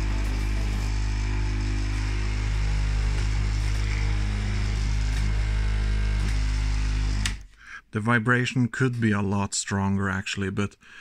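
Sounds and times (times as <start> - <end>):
vibration motor humming: 0.0 - 7.5.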